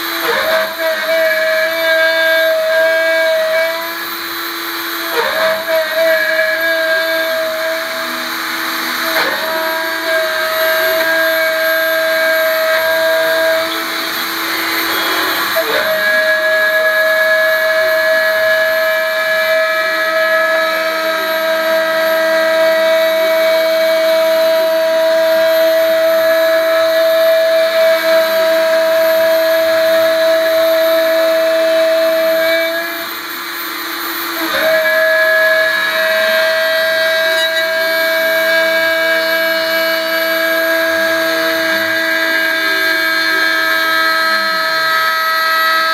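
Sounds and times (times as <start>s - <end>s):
end mill cutting metal: 0.0s - 45.9s
milling machine spindle whine: 0.0s - 45.9s.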